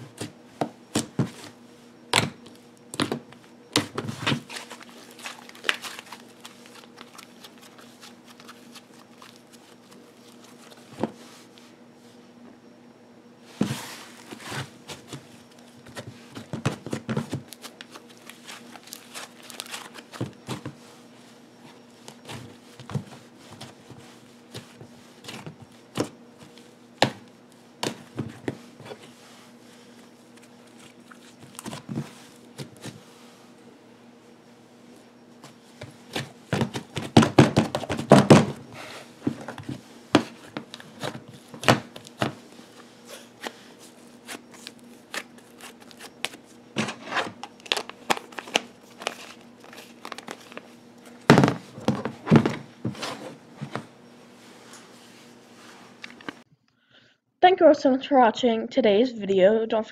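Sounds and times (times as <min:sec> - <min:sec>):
slime squishing with sticky pops: 0:03.8 - 0:09.9.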